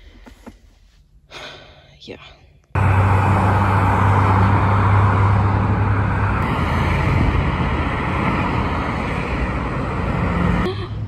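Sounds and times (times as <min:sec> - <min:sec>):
car engine hum: 0:02.7 - 0:11.0
road noise hiss: 0:02.8 - 0:11.0.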